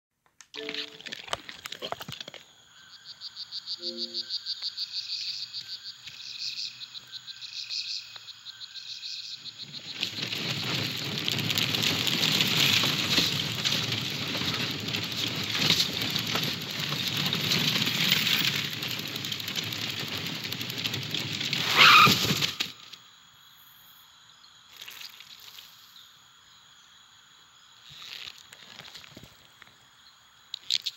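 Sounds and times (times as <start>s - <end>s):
crackling and rustling: 0.2s - 2.5s, 9.6s - 23.0s, 27.8s - 29.8s
regular chirping: 3.7s - 4.4s.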